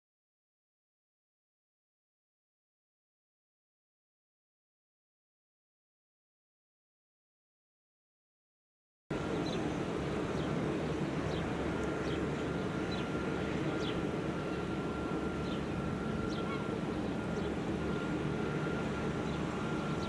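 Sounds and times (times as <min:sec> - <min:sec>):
boat engine drone: 0:09.1 - 0:20.0.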